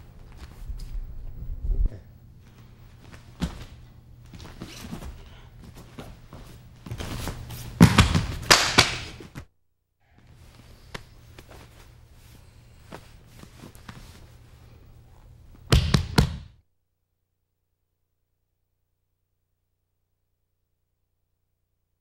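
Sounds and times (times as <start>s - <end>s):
bodies thudding on mat: 3.0s - 9.4s.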